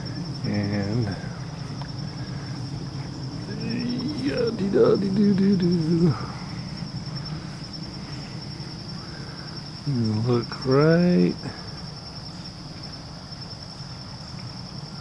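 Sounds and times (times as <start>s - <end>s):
insects trilling: 0.0s - 15.0s
man's drawn-out wordless sound: 3.4s - 6.4s.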